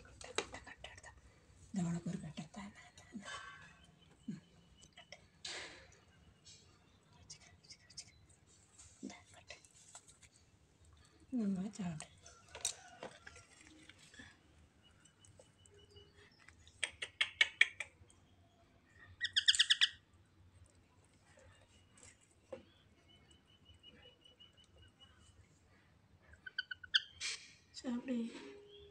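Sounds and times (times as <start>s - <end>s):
parakeets chirping: 19.2s - 20.0s.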